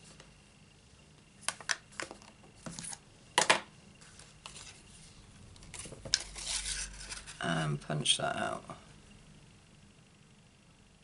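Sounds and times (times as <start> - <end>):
paper rustling: 4.0 - 7.4.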